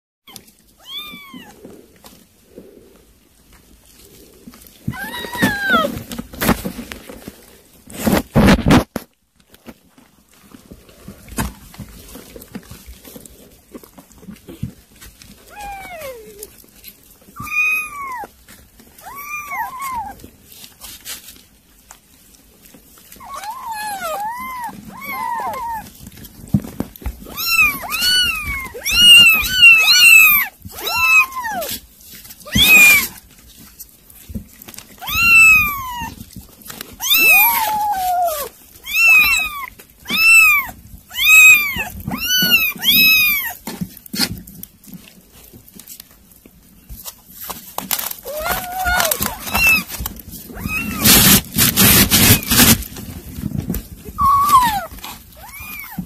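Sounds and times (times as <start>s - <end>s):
kittens mewing: 4.0s - 6.2s, 17.4s - 18.3s, 23.1s - 26.3s, 27.0s - 31.8s, 32.4s - 33.2s, 35.0s - 36.3s, 36.9s - 44.4s, 48.1s - 52.9s, 54.0s - 56.0s.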